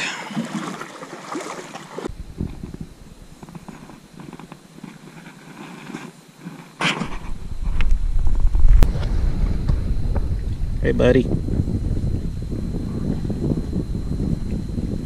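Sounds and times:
low rumble on microphone: 2.1 - 4.6, 7.0 - 15.0.

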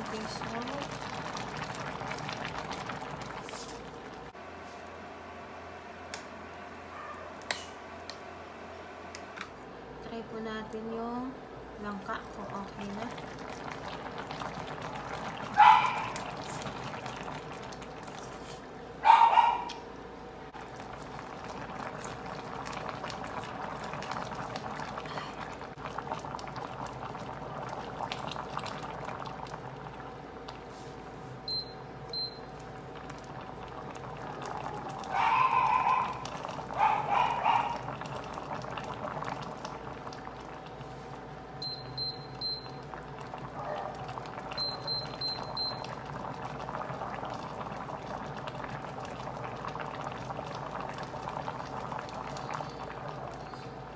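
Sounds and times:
soup bubbling: 0.0 - 4.4, 11.9 - 18.9, 20.5 - 53.9
dog barking: 6.9 - 7.4, 15.5 - 16.3, 19.0 - 19.8, 35.1 - 37.9, 43.5 - 44.1.

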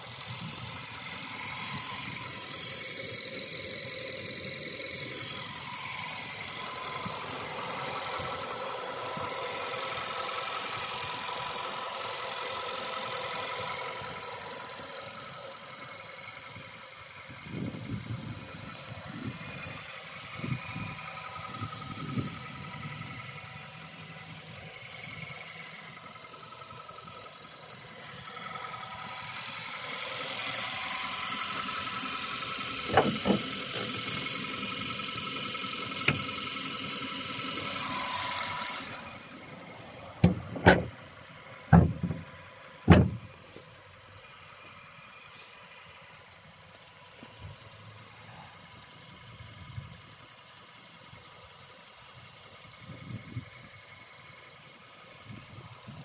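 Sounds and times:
car engine idling: 0.0 - 56.0
car bonnet thumps shut: 32.9 - 33.5, 40.2 - 40.9, 41.7 - 42.2, 42.9 - 43.2.

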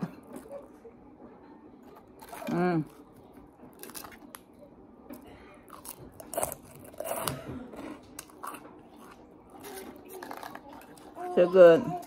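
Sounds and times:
crunchy chewing: 1.8 - 4.5, 5.2 - 11.3.

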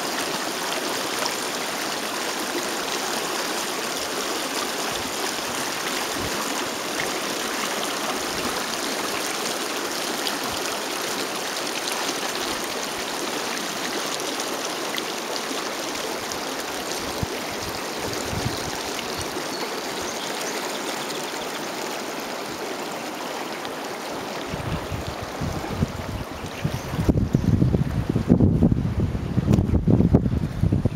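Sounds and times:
river water running: 0.0 - 30.9
wind buffeting microphone: 17.0 - 19.4, 24.4 - 30.9.

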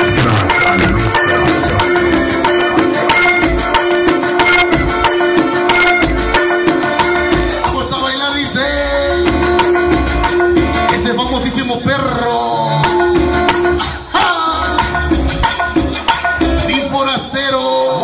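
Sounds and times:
dance music over sound system: 0.0 - 5.0.

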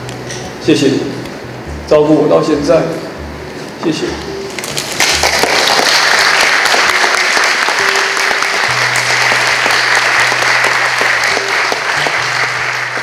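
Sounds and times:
soft background music: 0.0 - 13.0
audience applauding: 4.6 - 13.0.

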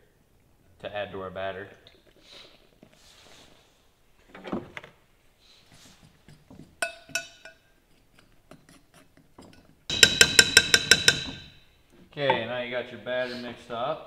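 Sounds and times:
utensil clinking against glass: 6.8 - 7.6.

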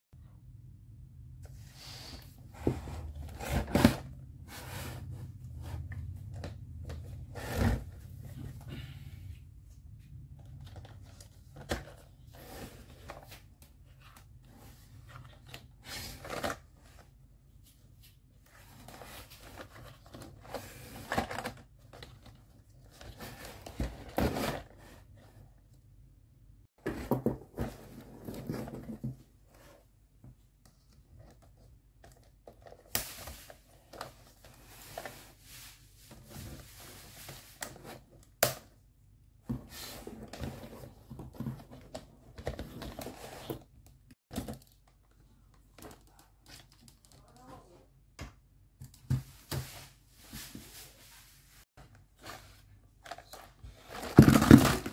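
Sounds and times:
plastic toy case handled: 52.2 - 54.9.

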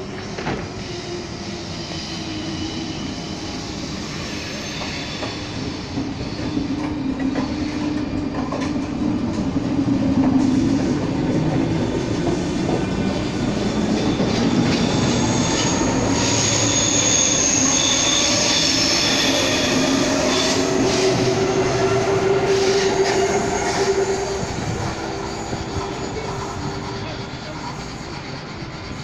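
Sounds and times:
train running past: 0.0 - 29.0
wheels squealing: 13.1 - 29.0.

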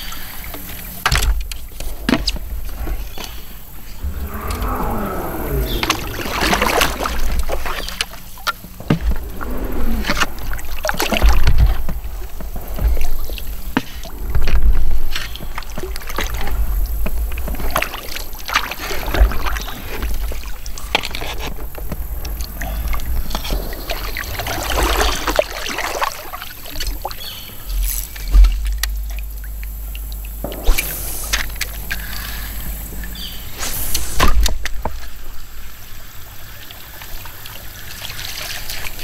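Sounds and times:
kayak paddle stroking water: 0.1 - 34.1.

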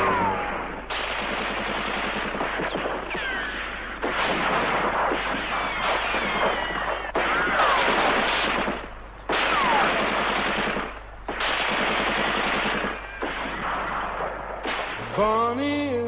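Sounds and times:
falling whistling tones: 0.0 - 0.9
automatic gunfire bursts: 0.0 - 15.8.

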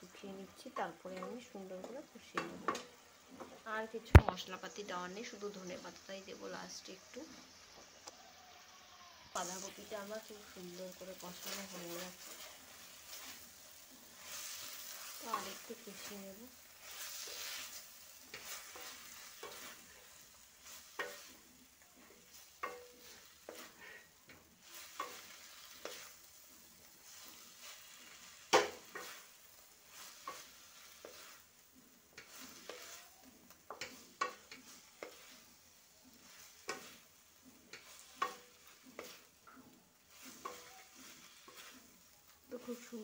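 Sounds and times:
low sizzle: 0.0 - 43.0
spatula scraping a pan: 9.4 - 43.0.

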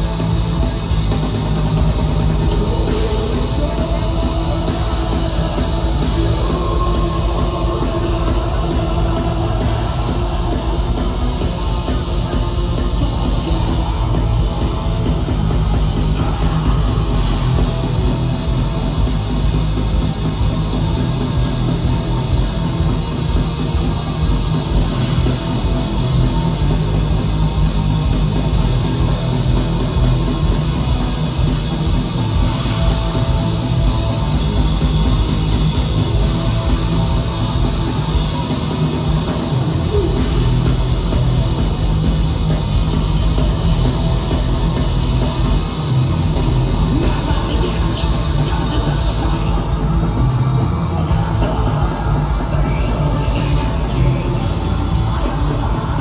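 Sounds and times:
distorted electric guitars: 0.0 - 56.0
drums: 0.0 - 56.0.

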